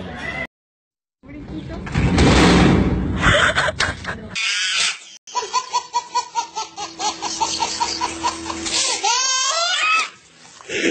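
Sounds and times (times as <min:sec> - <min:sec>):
baby laughing: 0:03.4 - 0:10.9.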